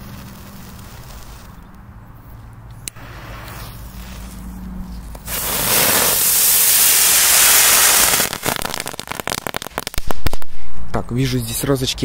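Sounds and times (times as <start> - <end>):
firework crackling pops: 0.0 - 1.6, 2.8 - 4.4, 5.1 - 11.0
firework hissing: 0.0 - 1.6, 2.8 - 10.5.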